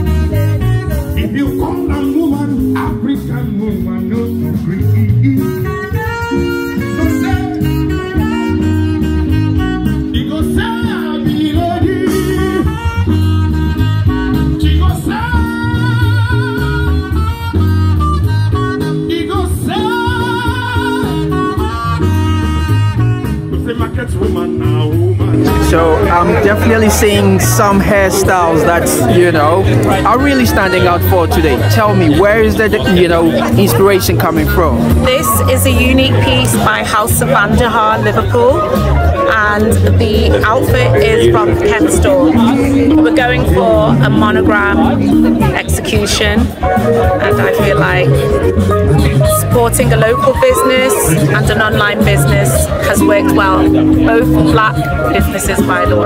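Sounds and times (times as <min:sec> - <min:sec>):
person singing: 0:00.0 - 0:17.7, 0:18.8 - 0:32.0
repeating bass beat: 0:00.0 - 0:56.0.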